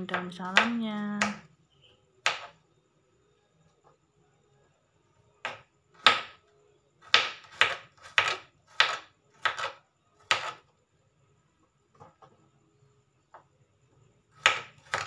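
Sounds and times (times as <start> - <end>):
knife slicing on plastic cutting board: 7.1 - 10.6.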